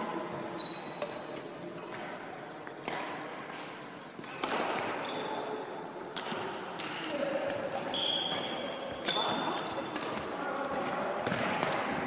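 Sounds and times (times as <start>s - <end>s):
sneaker squeak on court floor: 0.6s - 1.3s, 5.0s - 5.4s, 6.8s - 9.7s
sharp knocks ringing in hall: 6.2s - 12.0s.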